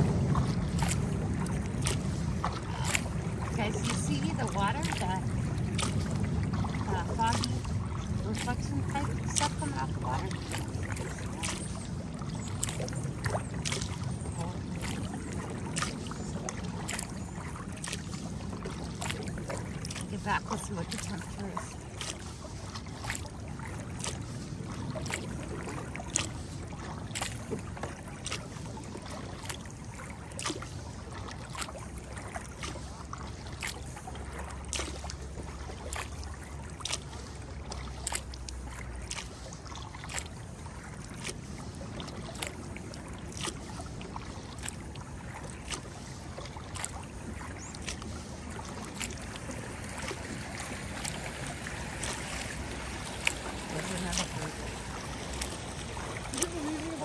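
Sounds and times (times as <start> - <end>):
low steady rumble: 0.0 - 57.0
paddle splashing in water: 0.0 - 57.0.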